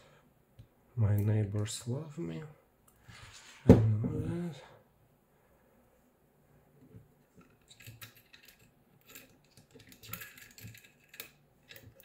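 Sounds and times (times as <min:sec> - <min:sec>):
metal parts and tweezers clicking: 0:07.4 - 0:12.0.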